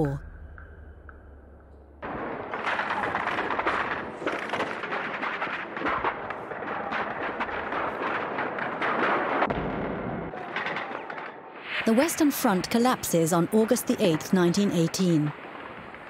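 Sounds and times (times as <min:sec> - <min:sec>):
gunfire and shellfire: 0:02.0 - 0:11.9.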